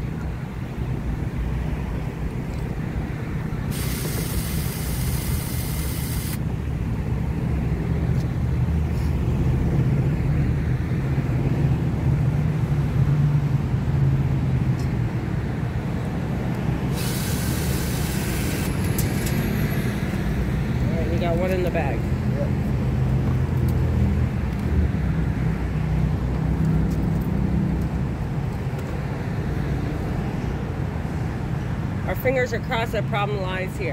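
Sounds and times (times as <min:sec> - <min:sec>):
cordless drill running: 0:03.7 - 0:06.4.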